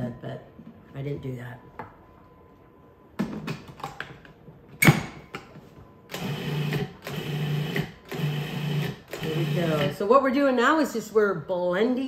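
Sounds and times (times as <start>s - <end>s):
food processor motor pulsing: 6.1s - 10.0s.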